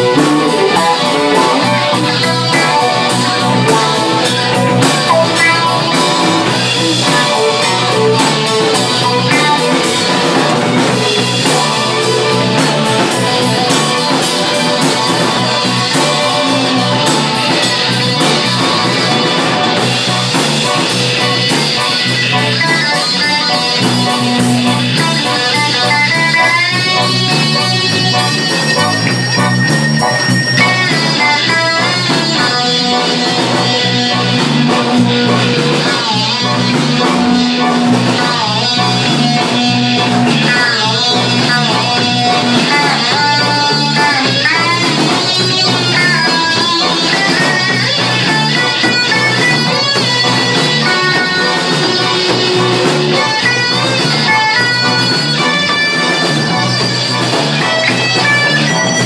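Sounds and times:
electric guitar: 0:00.0 - 0:59.0
rock band playing: 0:00.0 - 0:59.0.

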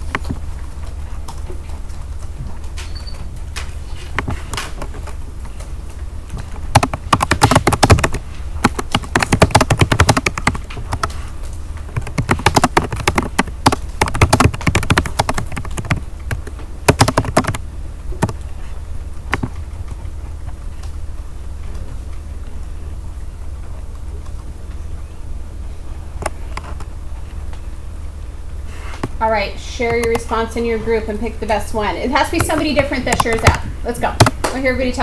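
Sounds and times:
low steady hum: 0:00.0 - 0:35.0
typing on a keyboard: 0:06.7 - 0:11.2, 0:11.8 - 0:17.6, 0:19.3 - 0:19.6, 0:29.9 - 0:30.3, 0:32.4 - 0:33.6.

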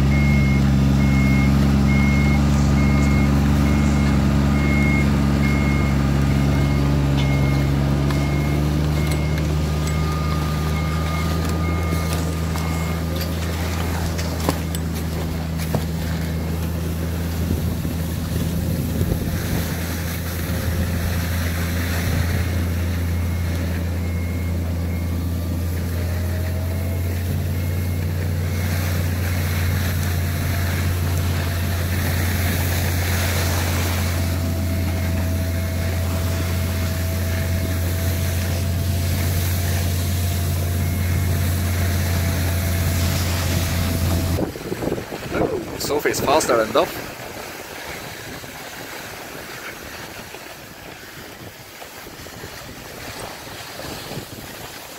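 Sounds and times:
snowmobile engine droning: 0:00.0 - 0:54.9
wind noise on microphone: 0:16.7 - 0:23.3, 0:40.8 - 0:45.9, 0:47.0 - 0:54.9.

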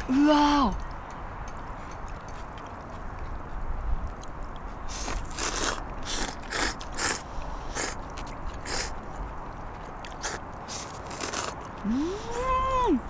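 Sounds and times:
people slurping noodles: 0:04.9 - 0:08.0, 0:08.6 - 0:09.0, 0:10.2 - 0:12.4.

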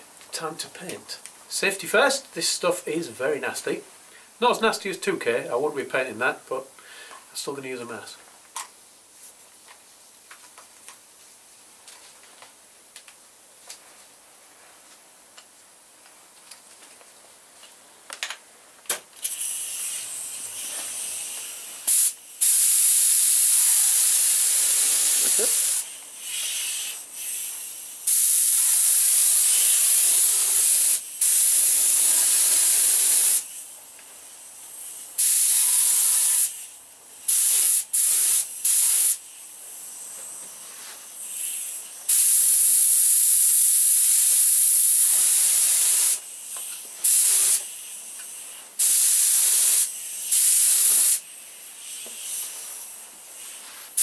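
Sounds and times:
spray gun hissing: 0:19.2 - 0:54.0.

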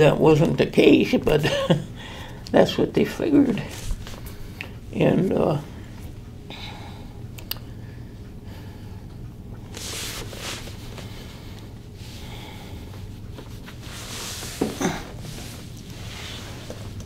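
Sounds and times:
low room hum: 0:00.0 - 0:17.0
man breathing through face mask: 0:09.7 - 0:13.3.

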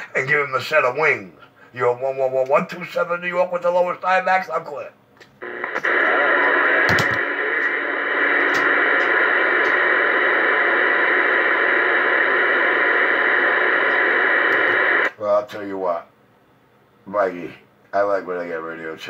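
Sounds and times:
radio static hiss: 0:05.4 - 0:15.2.

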